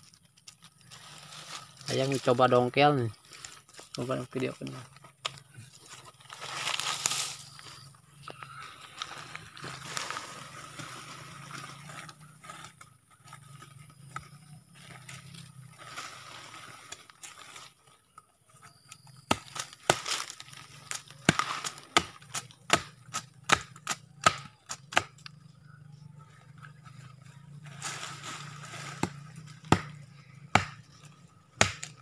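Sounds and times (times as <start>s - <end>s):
pole scraping soil: 0.0s - 17.8s, 26.7s - 29.6s.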